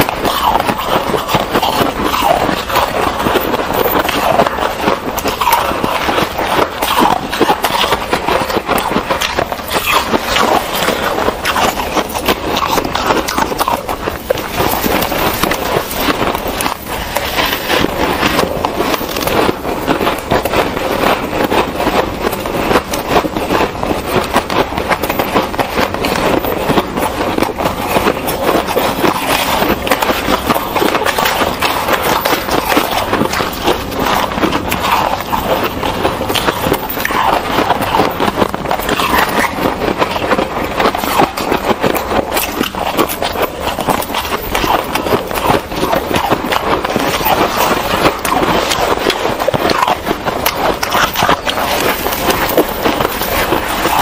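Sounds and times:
crunching and chewing shaved ice: 0.0s - 54.0s.

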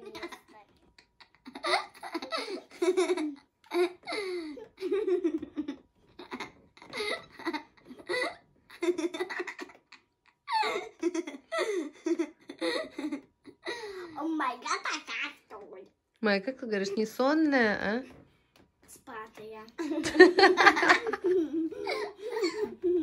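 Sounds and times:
girl giggling: 0.0s - 13.9s, 19.8s - 23.0s.

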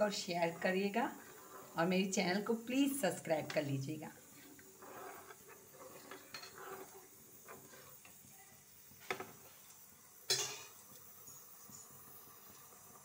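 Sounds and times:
spatula scraping in a pan: 0.0s - 10.8s.

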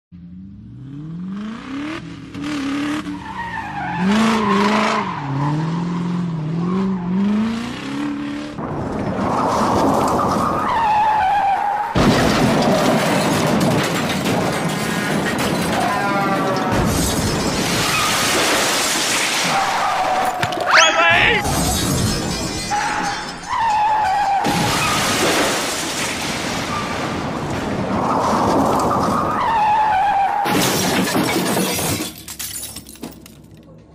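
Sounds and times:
car engine revving: 0.2s - 10.3s
car crash: 8.6s - 33.5s
tyres screeching: 19.6s - 21.6s.

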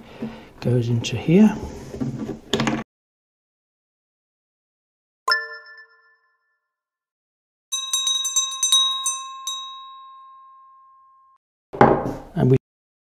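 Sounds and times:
bright bell strikes: 7.7s - 11.4s.

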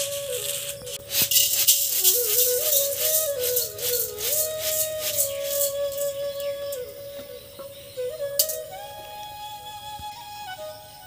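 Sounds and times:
rice rattling on bamboo tray: 0.0s - 6.8s
flute music: 0.0s - 11.0s.

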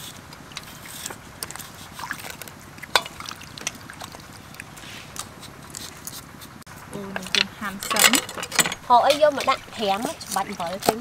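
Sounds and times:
water dripping and splashing: 0.3s - 5.3s
knife scraping cactus: 4.8s - 6.6s.

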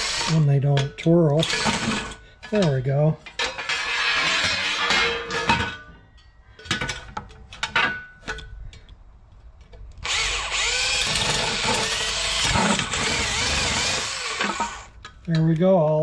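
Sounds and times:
power drill drilling metal: 0.0s - 0.5s, 1.4s - 2.3s, 10.0s - 15.0s.

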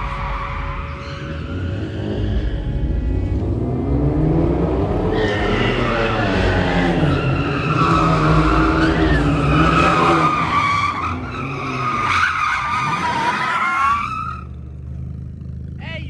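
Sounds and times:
car engine revving: 0.0s - 15.8s
tyres squealing: 5.1s - 14.6s.

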